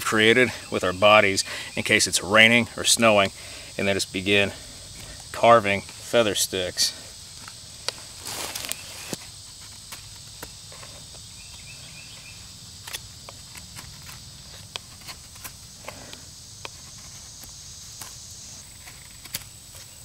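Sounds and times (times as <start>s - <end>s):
insect buzz: 0.0s - 20.0s
knife scraping wood: 12.9s - 20.0s.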